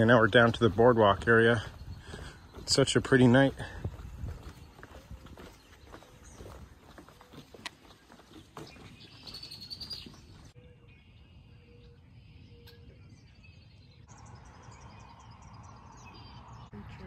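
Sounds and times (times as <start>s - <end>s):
outdoor background noise: 0.0s - 17.0s
faint bird chirps: 4.4s - 17.0s.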